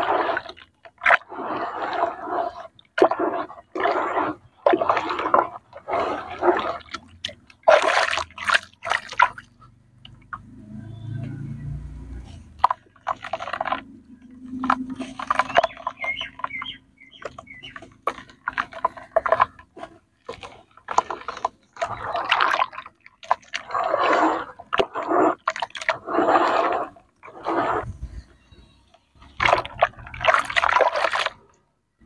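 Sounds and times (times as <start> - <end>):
hands sloshing muddy water: 0.0 - 11.2, 12.4 - 28.4, 29.2 - 31.6.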